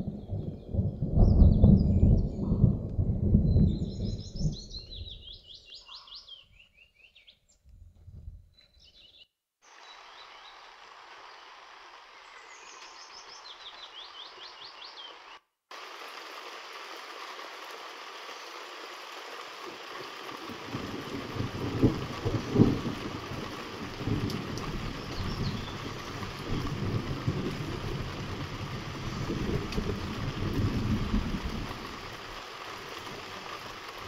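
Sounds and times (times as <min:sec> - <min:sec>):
thunder rumbling: 0:00.0 - 0:05.2, 0:20.4 - 0:32.3
rain hissing on trees: 0:00.0 - 0:06.3, 0:09.6 - 0:34.0
songbird trills: 0:03.6 - 0:07.6, 0:08.5 - 0:11.5, 0:12.1 - 0:15.4.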